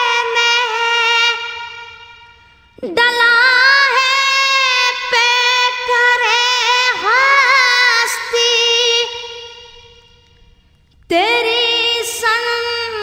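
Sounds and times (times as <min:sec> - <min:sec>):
high voice singing: 0:00.0 - 0:10.3.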